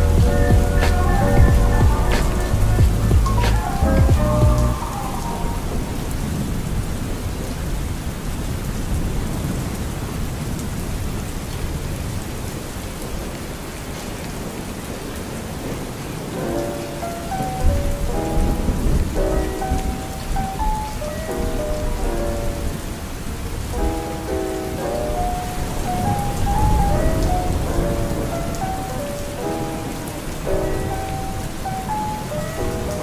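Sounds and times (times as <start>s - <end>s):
low rumble: 0.0s - 4.8s
soft melody: 0.0s - 6.4s, 16.2s - 33.0s
steady rain: 0.0s - 33.0s.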